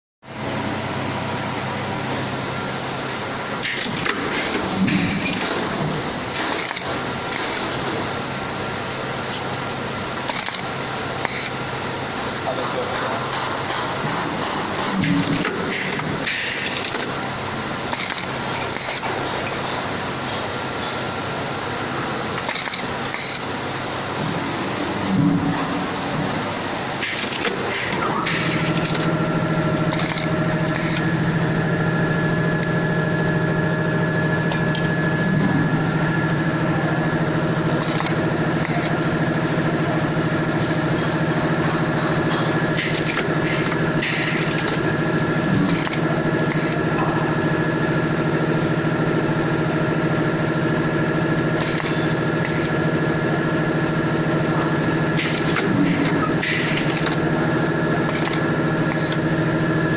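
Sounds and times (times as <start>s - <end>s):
riveting machine humming: 0.3s - 59.9s
sharp machine clacks: 3.6s - 8.1s, 10.2s - 17.2s, 17.9s - 21.1s, 22.3s - 23.5s, 27.0s - 31.2s, 37.6s - 41.2s, 42.2s - 47.2s, 51.3s - 52.9s, 54.9s - 59.9s.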